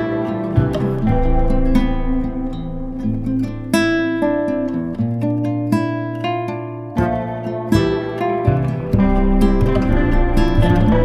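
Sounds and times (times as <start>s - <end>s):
plucked string music: 0.0s - 11.0s.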